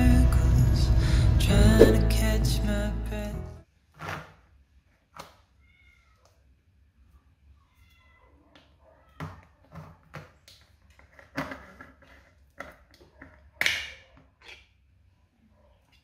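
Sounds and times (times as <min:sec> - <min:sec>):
cat meowing: 0:05.6 - 0:06.2, 0:07.7 - 0:09.2.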